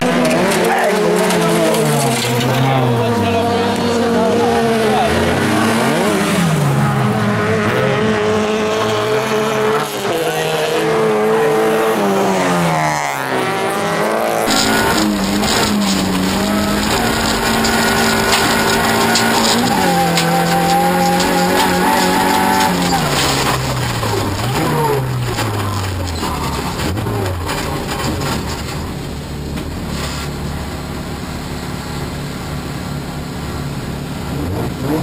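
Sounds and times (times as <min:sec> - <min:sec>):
car engine from inside cabin: 0:00.0 - 0:27.9
racing car engine revving: 0:00.0 - 0:35.0.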